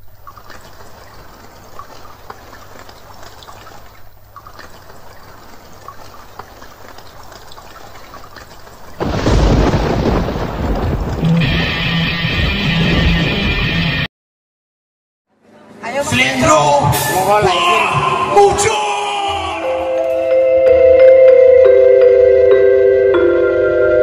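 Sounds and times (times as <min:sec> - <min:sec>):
rain-like hiss: 0:00.0 - 0:12.1
loud rumble: 0:09.0 - 0:14.1.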